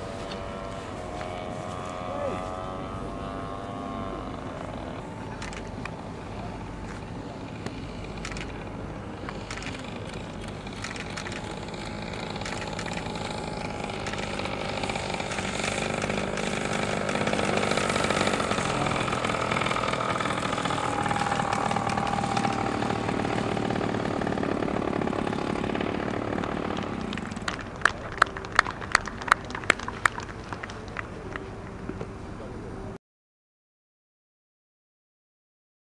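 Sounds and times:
model airplane engine: 0.0 - 33.0
sharp evenly spaced clicks: 7.4 - 24.2.

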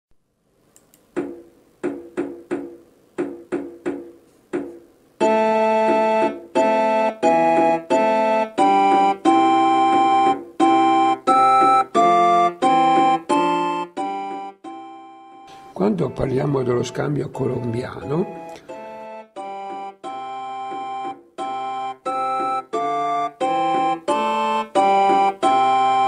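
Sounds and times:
held organ-like chords: 5.2 - 26.0.

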